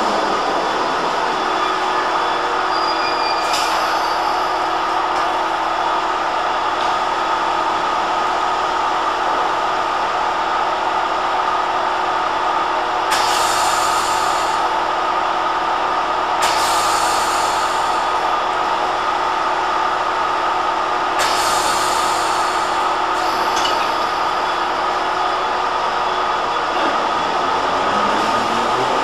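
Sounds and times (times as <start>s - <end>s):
train equipment drone: 0.0s - 29.0s
air hiss bursts: 16.4s - 18.0s.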